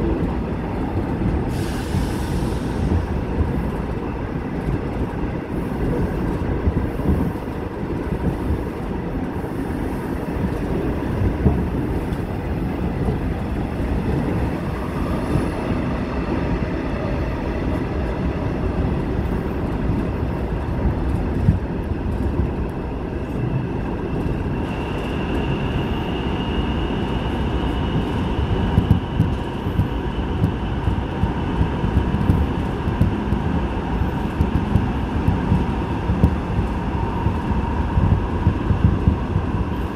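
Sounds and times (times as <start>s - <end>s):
subway train rumbling: 0.0s - 39.9s.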